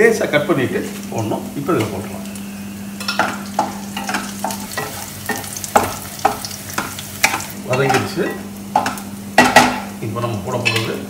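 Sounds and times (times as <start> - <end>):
oil sizzling: 0.0 - 11.0
spatula scraping and knocking pan: 3.0 - 9.9.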